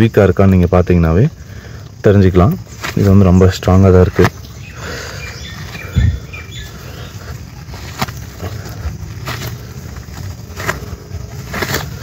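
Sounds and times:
bird chirps: 0:02.5 - 0:07.9.

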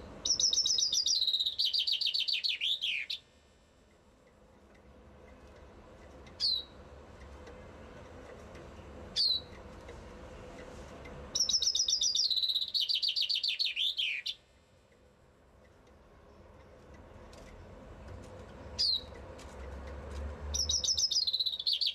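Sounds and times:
bird call notes: 0:00.2 - 0:03.2, 0:11.4 - 0:14.4, 0:20.5 - 0:21.9
bird song trill: 0:00.2 - 0:03.2, 0:06.4 - 0:06.8, 0:09.1 - 0:09.6, 0:11.3 - 0:14.4, 0:18.7 - 0:19.2, 0:20.5 - 0:21.9.

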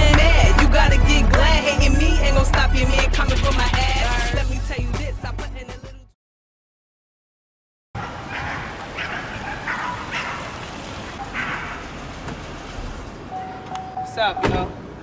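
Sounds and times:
dog barking: 0:08.0 - 0:10.5
outdoor background noise: 0:08.0 - 0:15.0.

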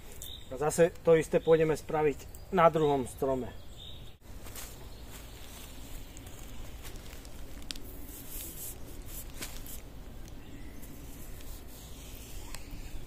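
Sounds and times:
soft rustles and scrapes: 0:04.3 - 0:13.0.

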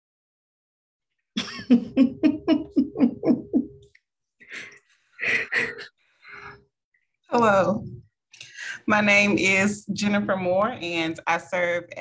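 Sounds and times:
woman laughing: 0:01.4 - 0:03.8, 0:05.2 - 0:05.9.

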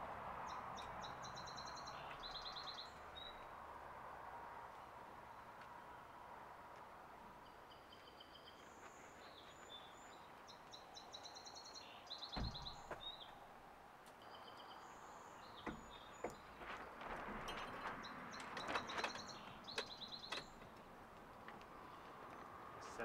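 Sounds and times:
birds chirping and trilling: 0:00.4 - 0:03.4, 0:07.4 - 0:13.4, 0:14.2 - 0:21.0
dull thump: 0:12.4 - 0:13.1.

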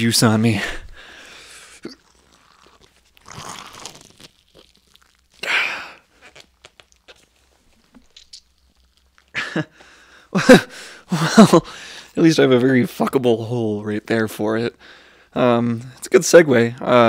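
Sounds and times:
watermelon rind crunching and tearing: 0:01.6 - 0:09.4
small cracks and clicks: 0:06.2 - 0:09.4.

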